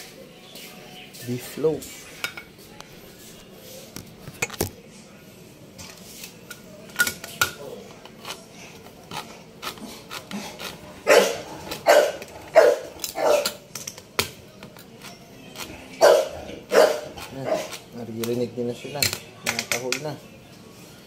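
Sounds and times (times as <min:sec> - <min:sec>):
dogs barking: 0:11.0 - 0:13.6, 0:15.9 - 0:17.8.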